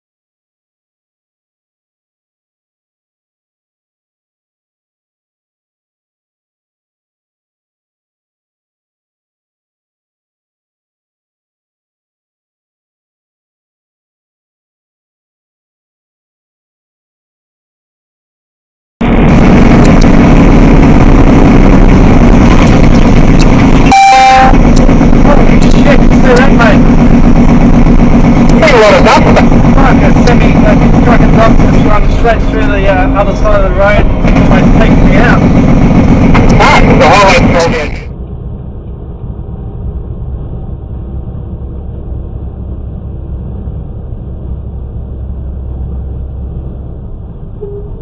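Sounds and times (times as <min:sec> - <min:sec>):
truck road and engine rumble: 0:19.0 - 0:48.0
truck horn blast: 0:23.8 - 0:24.8.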